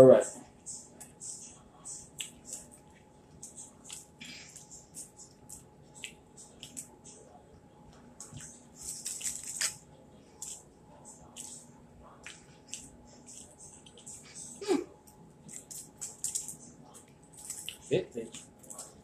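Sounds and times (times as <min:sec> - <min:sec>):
fried breading crackling and tearing: 0:08.8 - 0:09.8.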